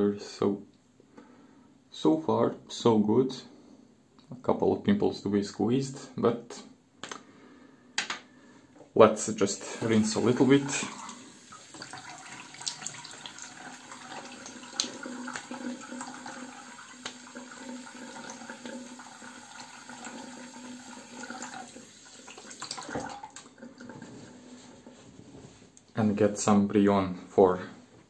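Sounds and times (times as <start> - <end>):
tap water running into sink: 9.6 - 24.0
water splashing on face: 9.8 - 16.2.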